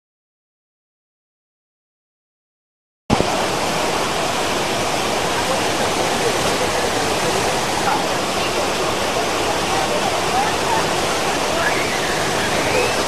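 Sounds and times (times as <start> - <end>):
waterfall rushing into pool: 3.1 - 13.0.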